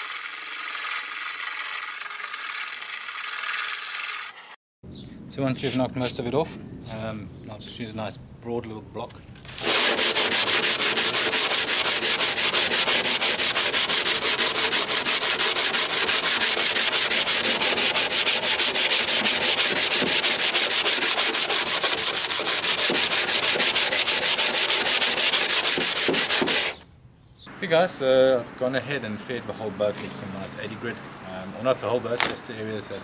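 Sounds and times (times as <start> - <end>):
hand sanding strokes: 9.5 - 26.8.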